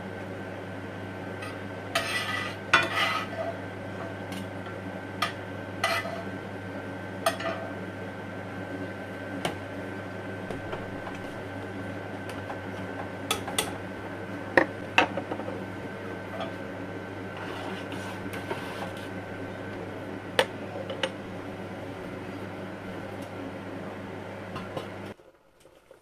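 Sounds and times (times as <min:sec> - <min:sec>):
steady low hum: 0:00.0 - 0:25.6.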